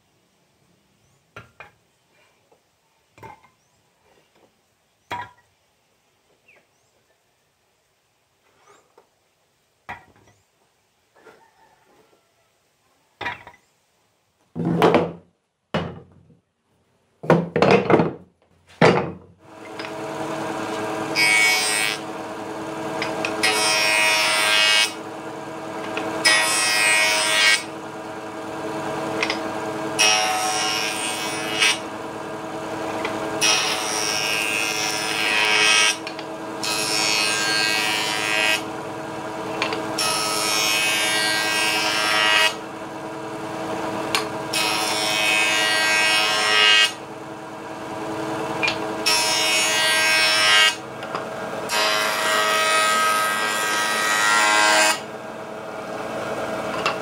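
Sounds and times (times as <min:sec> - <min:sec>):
wooden boards clattering: 0:17.2 - 0:19.3
saw rasping through wood: 0:19.5 - 0:42.8, 0:51.6 - 0:55.2
power saw motor hum: 0:19.5 - 0:57.0.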